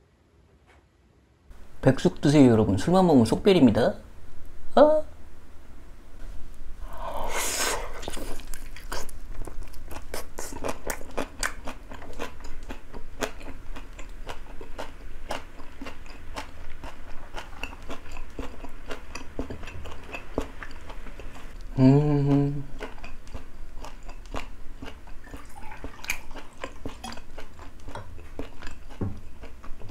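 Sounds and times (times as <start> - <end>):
mouth clicks and smacks chewing: 7.9 - 21.7, 22.8 - 29.9.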